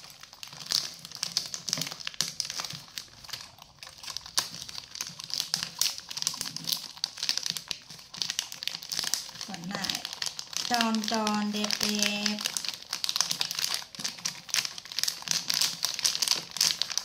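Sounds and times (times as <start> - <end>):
plastic packet crinkling: 0.0 - 17.0.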